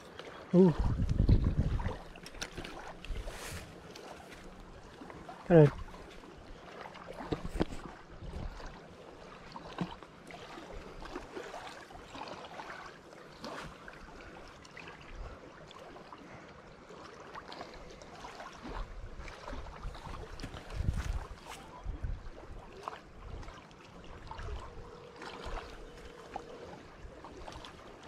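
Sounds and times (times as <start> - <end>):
wind gusts on microphone: 0.6 - 2.1, 19.7 - 22.6.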